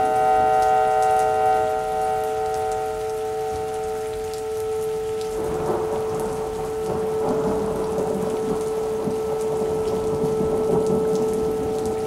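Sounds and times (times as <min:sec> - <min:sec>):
rain: 0:00.0 - 0:12.0
warning siren: 0:00.0 - 0:12.0
thunder rumble: 0:05.4 - 0:12.0.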